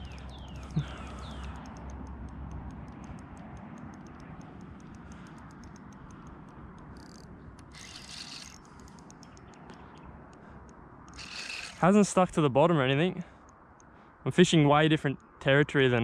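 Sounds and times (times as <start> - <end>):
fishing reel clicking: 0.0 - 9.6, 11.1 - 11.9.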